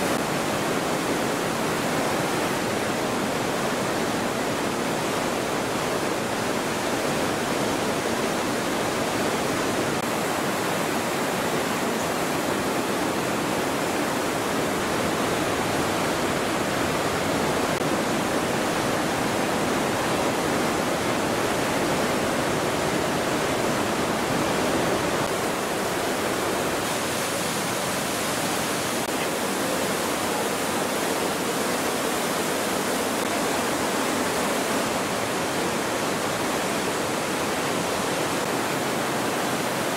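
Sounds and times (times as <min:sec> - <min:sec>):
river rushing over boulders: 0:00.0 - 0:39.9.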